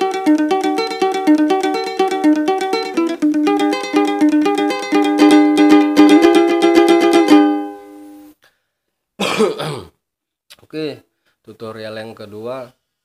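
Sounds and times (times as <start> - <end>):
small ukulele strings plucked fast: 0.0 - 7.6.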